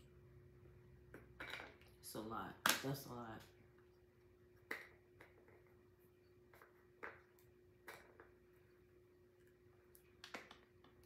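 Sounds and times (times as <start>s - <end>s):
faint electrical hum: 0.0s - 11.0s
small objects clicking and tapping: 9.8s - 11.0s.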